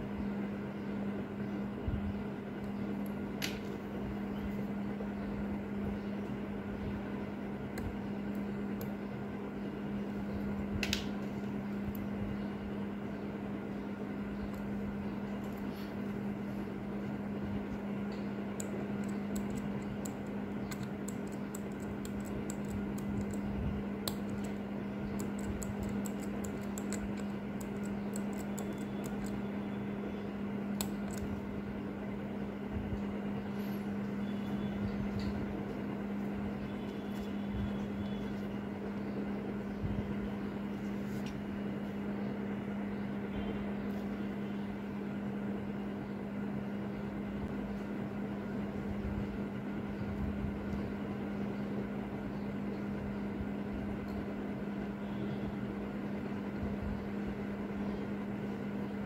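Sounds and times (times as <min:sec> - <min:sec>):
steady hum: 0:00.0 - 0:59.0
tweezers clicking on metal parts: 0:18.5 - 0:29.4.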